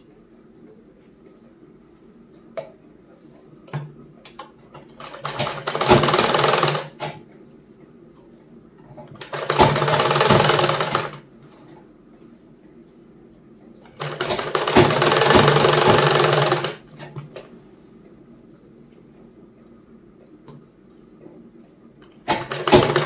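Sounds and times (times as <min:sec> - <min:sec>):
sewing machine stitching: 0:04.9 - 0:07.0, 0:09.2 - 0:11.2, 0:13.9 - 0:16.9, 0:22.2 - 0:23.0.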